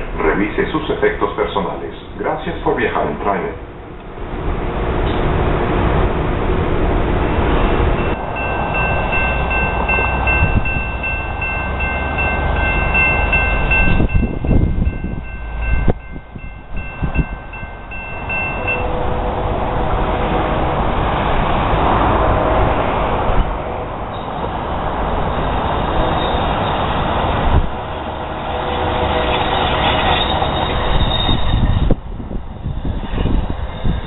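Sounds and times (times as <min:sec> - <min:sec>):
light-rail train humming: 0:00.0 - 0:34.0
crossing warning bell ringing: 0:06.9 - 0:21.0, 0:24.1 - 0:34.0.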